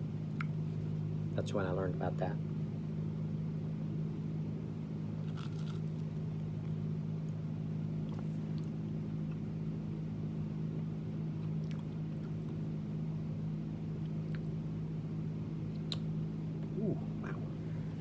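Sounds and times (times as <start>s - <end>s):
low mechanical hum: 0.0s - 18.0s
person chewing toast: 5.2s - 7.4s.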